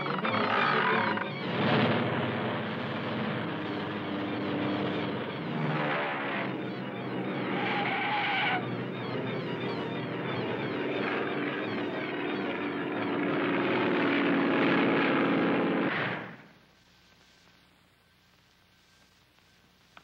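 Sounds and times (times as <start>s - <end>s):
cartoon propeller plane engine: 0.0s - 15.9s.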